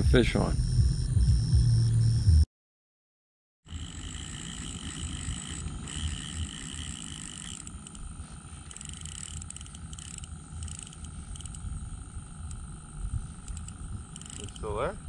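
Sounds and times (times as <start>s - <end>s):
low rumble: 0.0s - 2.4s
pulsing chirping tone: 0.0s - 2.5s, 3.7s - 15.0s
steady high-pitched tones: 3.7s - 15.0s.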